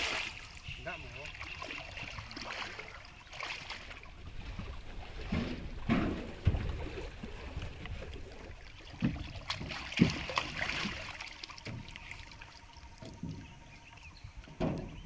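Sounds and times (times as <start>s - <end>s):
water splashing and trickling: 0.0s - 15.0s
thumps on wooden boat hull: 5.2s - 6.8s.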